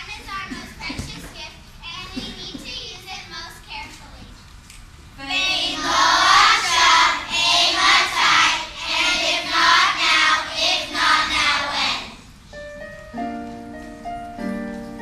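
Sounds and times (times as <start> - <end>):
children's choir singing: 5.2 - 12.2.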